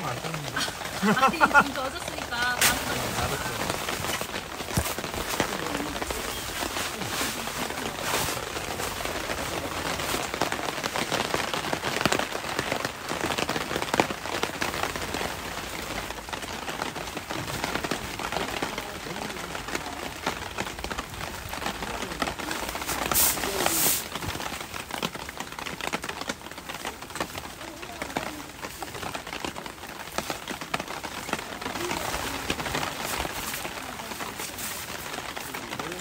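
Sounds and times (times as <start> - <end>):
rain pattering on a tent: 0.0 - 36.0
fabric rustling: 0.8 - 10.6.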